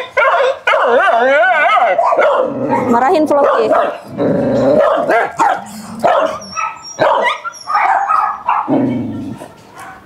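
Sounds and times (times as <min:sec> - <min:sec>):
dog yipping: 0:00.0 - 0:04.0, 0:04.7 - 0:08.7
dog barking: 0:00.0 - 0:04.1, 0:04.8 - 0:09.0, 0:09.7 - 0:10.0.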